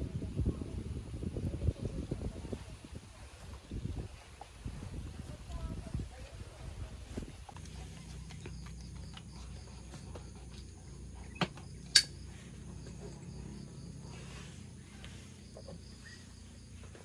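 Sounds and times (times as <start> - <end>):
insects chirring: 7.4 - 17.0.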